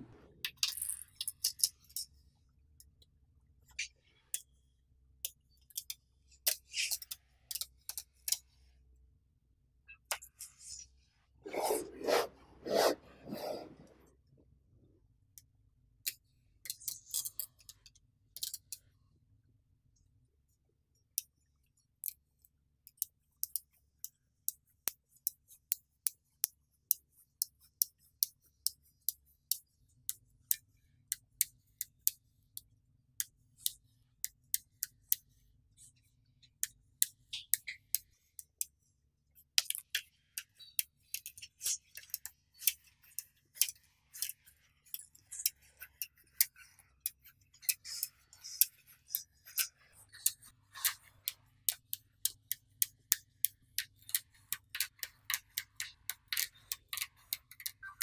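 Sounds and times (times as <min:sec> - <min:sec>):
balls rattling and scraping: 0:10.1 - 0:14.1.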